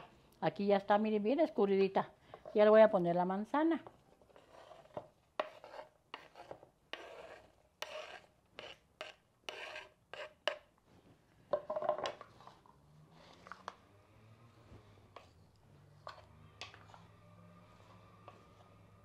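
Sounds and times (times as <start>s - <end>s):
wooden spoon scraping cutting board: 3.8s - 10.7s, 15.1s - 19.0s
stirring salad in clay bowl: 15.1s - 18.8s.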